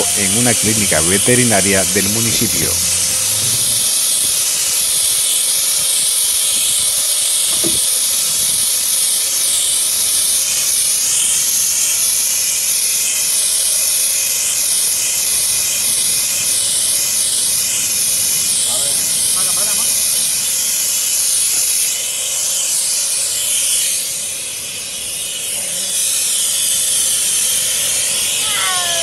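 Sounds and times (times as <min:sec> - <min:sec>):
compressed air hissing from hose: 0:00.0 - 0:29.0.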